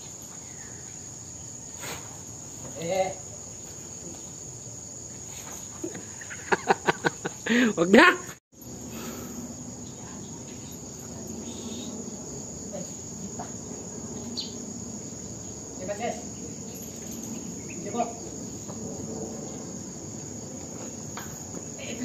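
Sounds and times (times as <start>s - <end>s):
crickets droning: 0.0s - 22.0s
faint knocks and shuffles: 5.1s - 6.2s.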